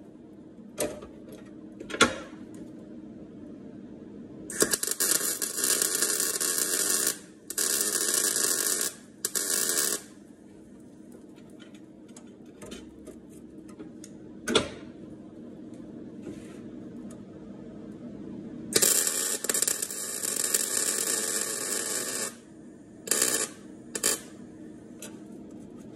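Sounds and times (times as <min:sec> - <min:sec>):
welder crackling: 0:04.5 - 0:10.2, 0:18.7 - 0:22.4, 0:23.1 - 0:24.4.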